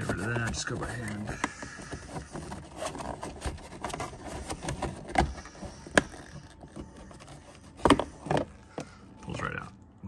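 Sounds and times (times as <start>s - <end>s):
plastic rubbing and scraping: 0.0s - 9.8s.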